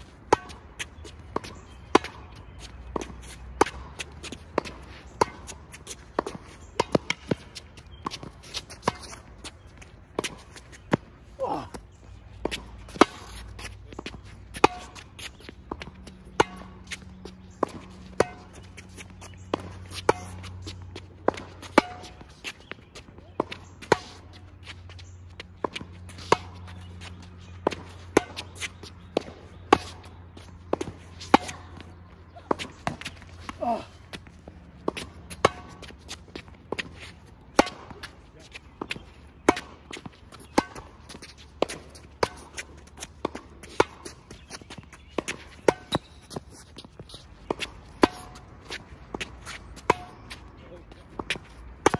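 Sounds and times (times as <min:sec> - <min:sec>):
ball bouncing on hard court: 0:37.5 - 0:50.4, 0:51.2 - 0:51.9.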